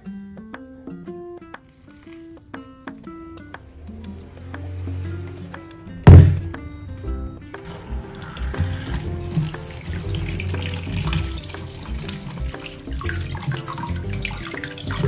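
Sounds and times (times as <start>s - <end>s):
background music: 0.0s - 15.0s
tap water splashing in sink: 7.5s - 15.0s
potatoes scrubbed by hand: 7.6s - 15.0s.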